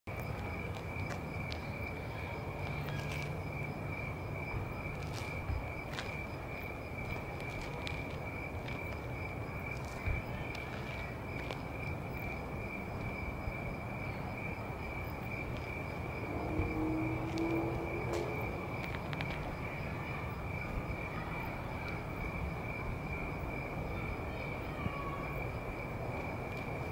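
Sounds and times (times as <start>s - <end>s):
crickets trilling: 0.1s - 26.9s
low hum: 15.2s - 19.6s.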